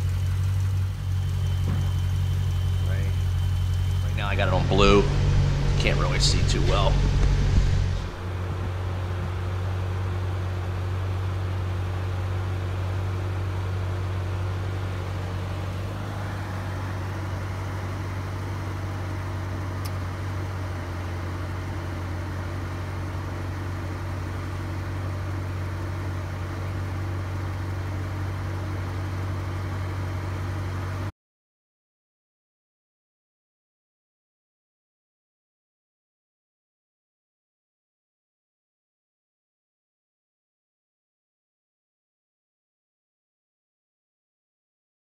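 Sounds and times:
car engine idling: 0.0s - 31.1s.

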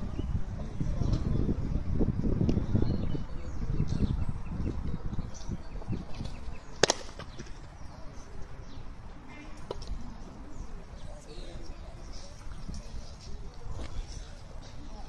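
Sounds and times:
birds chirping: 0.0s - 15.0s
baseball smacking into mitt: 6.8s - 7.6s.

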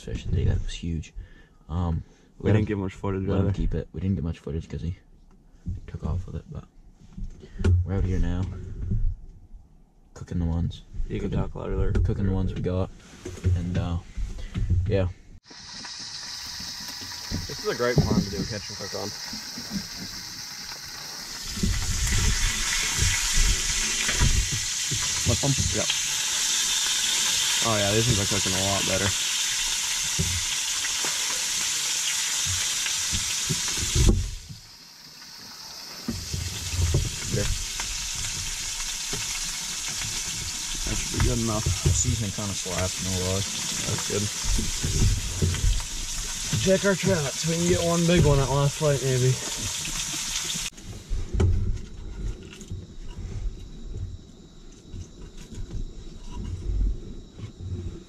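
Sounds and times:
fish sizzling in a pan: 15.4s - 50.8s.

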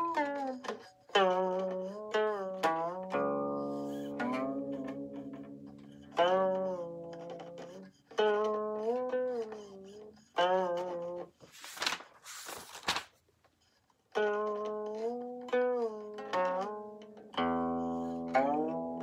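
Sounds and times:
plucked zither notes: 0.0s - 11.4s, 14.1s - 19.0s
page turning: 11.4s - 13.2s.

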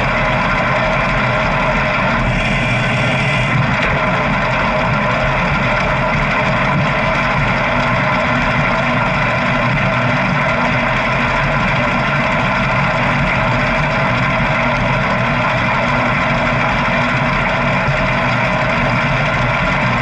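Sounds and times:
motorcycle engine droning: 0.0s - 11.3s.

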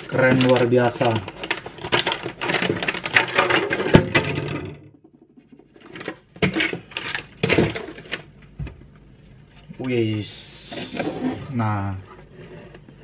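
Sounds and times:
plastic bags rustling: 0.0s - 4.0s.

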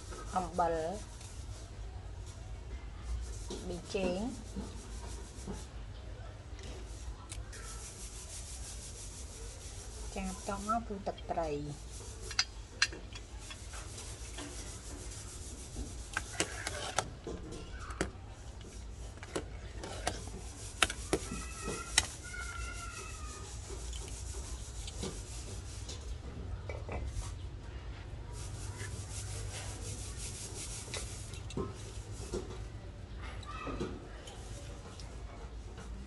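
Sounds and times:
soup boiling and bubbling: 7.5s - 10.9s, 11.6s - 26.2s.

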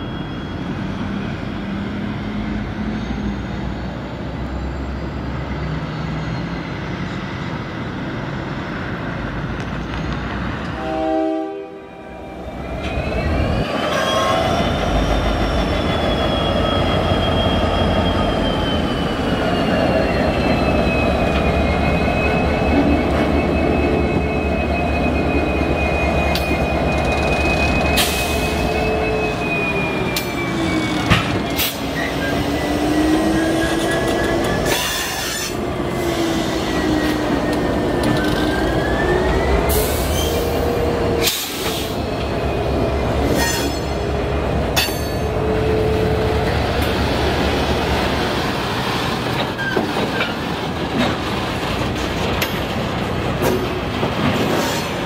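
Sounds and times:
diesel locomotive running: 0.0s - 55.0s
wheel flanges squealing: 12.6s - 46.9s, 49.1s - 52.8s.

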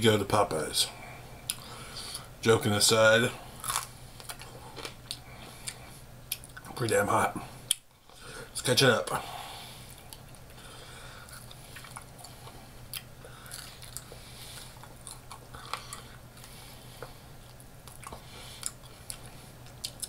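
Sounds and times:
person chewing crispy chicken: 3.6s - 6.6s, 11.2s - 20.0s.

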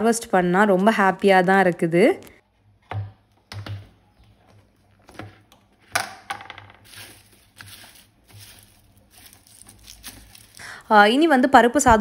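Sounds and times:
onion skins rustling: 6.8s - 11.0s.

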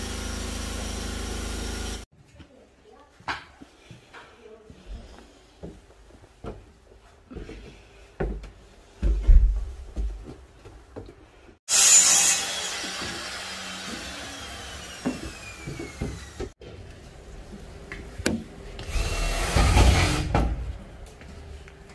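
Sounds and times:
power tool whine: 0.0s - 2.1s, 11.7s - 16.6s.

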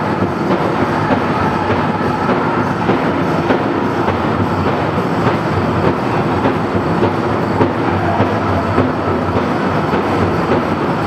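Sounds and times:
people singing: 0.0s - 4.1s
drum group playing fast beat: 0.0s - 11.0s.

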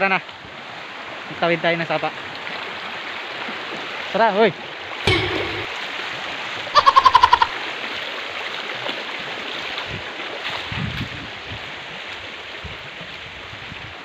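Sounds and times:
stream running over rocks: 0.3s - 5.0s, 5.6s - 14.0s
low handling knocks: 5.1s - 5.7s.

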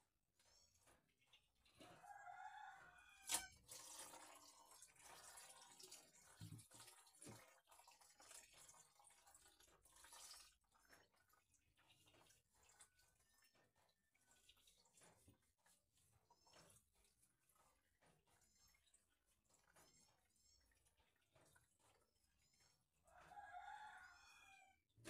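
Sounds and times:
water splashing and dripping: 3.2s - 19.5s.

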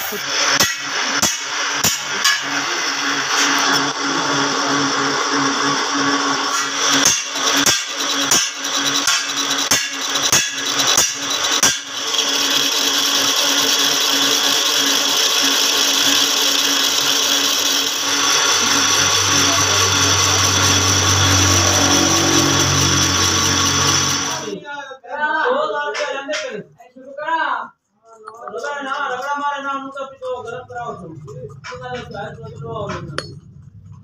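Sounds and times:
lathe tool scraping metal: 0.0s - 24.6s
low hum: 0.1s - 7.6s, 17.6s - 24.6s, 30.0s - 34.0s.

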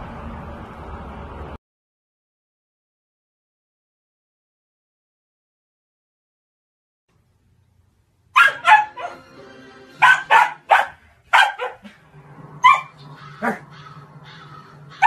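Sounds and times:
puppy barking: 8.3s - 9.3s, 10.0s - 12.0s, 12.6s - 15.0s.

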